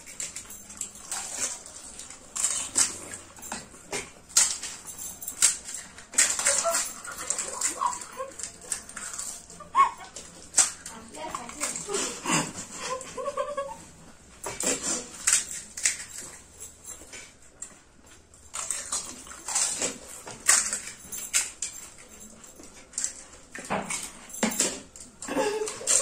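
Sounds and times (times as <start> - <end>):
crisp shells crunching: 5.4 - 12.2, 18.5 - 21.0.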